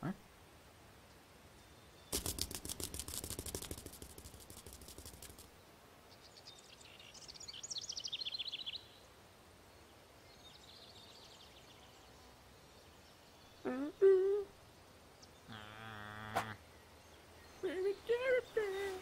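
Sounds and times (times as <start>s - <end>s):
small bird chirping trill: 1.6s - 5.5s
fast run of sharp clicks: 2.1s - 5.5s.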